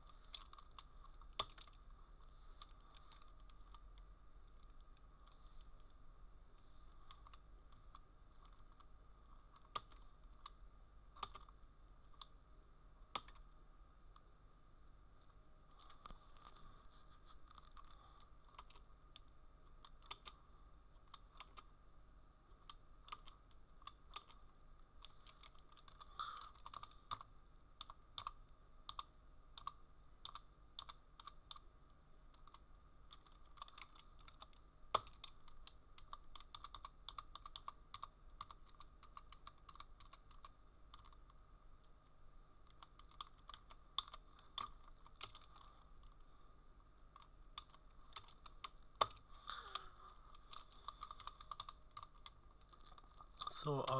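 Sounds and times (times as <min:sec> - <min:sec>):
steady hum: 0:00.0 - 0:53.9
typing on computer keyboard: 0:00.3 - 0:01.8, 0:09.5 - 0:10.6, 0:11.2 - 0:12.3, 0:13.1 - 0:13.4, 0:17.5 - 0:20.4, 0:21.0 - 0:21.7, 0:22.6 - 0:24.4, 0:25.0 - 0:31.7, 0:32.3 - 0:41.4, 0:42.6 - 0:45.7, 0:47.2 - 0:49.8, 0:50.4 - 0:53.9.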